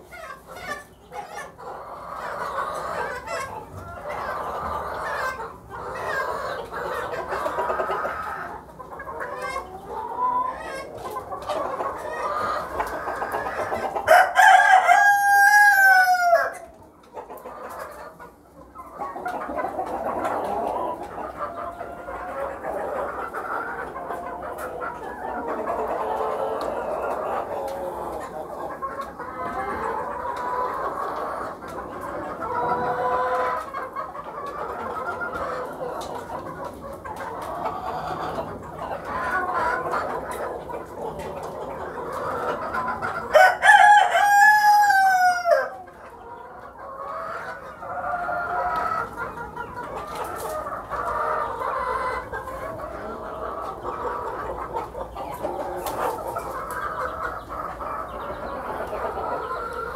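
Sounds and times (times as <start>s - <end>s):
hens and roosters clucking: 0.0s - 59.9s
rooster crowing: 14.1s - 16.6s, 43.3s - 45.8s.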